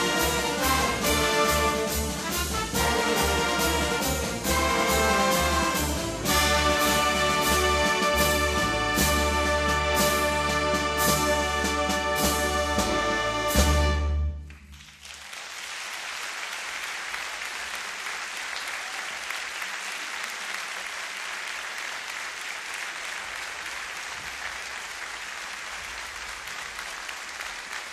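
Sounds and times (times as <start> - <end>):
percussion strokes: 0.0 - 14.0
audience applause: 14.5 - 27.9.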